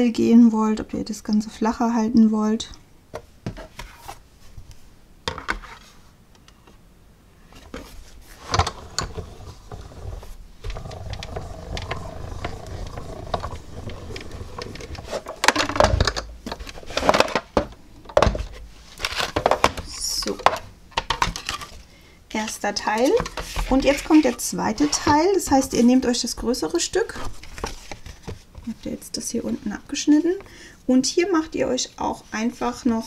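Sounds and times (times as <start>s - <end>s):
die-cutting machine rumbling: 8.6s - 16.1s.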